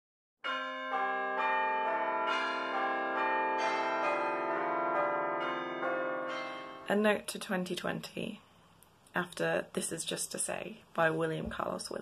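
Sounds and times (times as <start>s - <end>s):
ringing chime notes: 0.4s - 7.0s.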